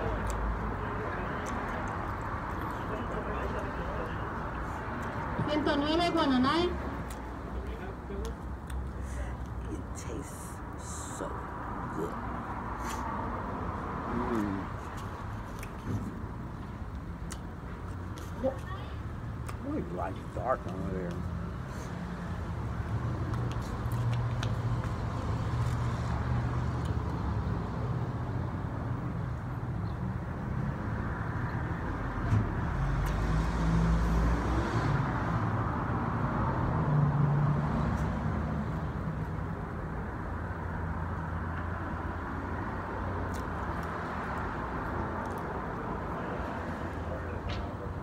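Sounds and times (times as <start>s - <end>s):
road traffic rumble: 0.0s - 48.0s.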